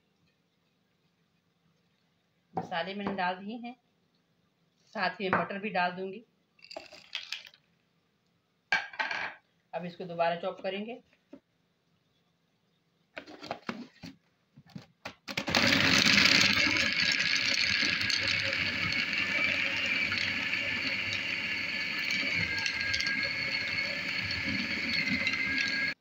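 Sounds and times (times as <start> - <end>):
food chopper motor whining: 15.3 - 26.0.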